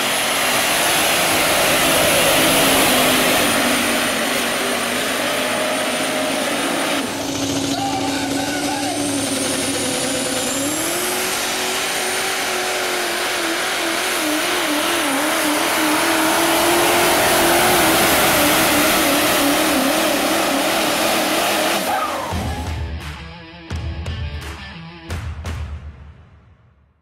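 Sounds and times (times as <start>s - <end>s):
diesel truck engine under load: 0.0s - 22.8s.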